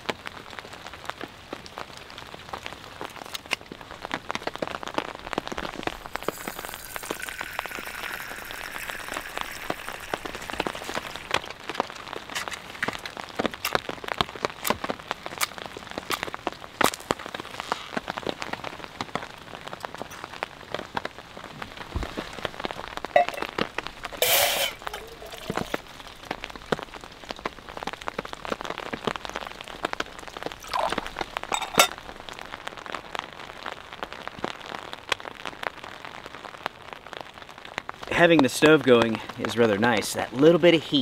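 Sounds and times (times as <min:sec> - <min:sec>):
rain pattering on tent fabric: 0:00.0 - 0:41.0.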